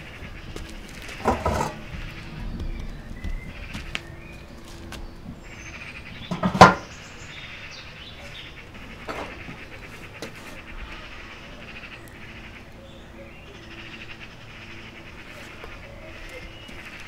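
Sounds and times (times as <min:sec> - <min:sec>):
metal bin lid clank: 0:06.3 - 0:06.9.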